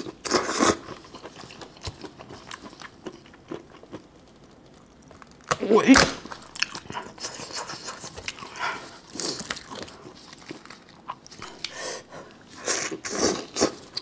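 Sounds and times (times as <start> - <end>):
meat tearing and rustling: 4.0 - 11.6.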